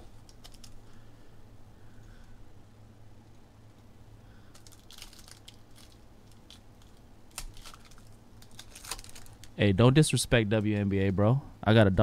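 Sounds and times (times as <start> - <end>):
low steady hum: 0.0 - 12.0
foil wrapper crinkling and tearing: 4.5 - 9.6.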